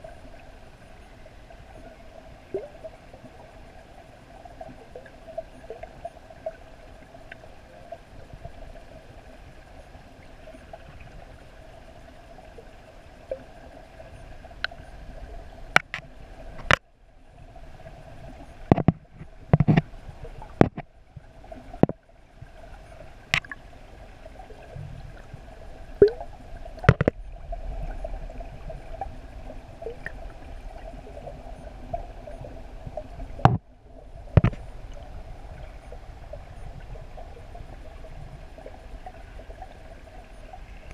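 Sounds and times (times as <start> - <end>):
steady underwater hum: 0.0 - 40.9
water gurgling: 0.0 - 40.9.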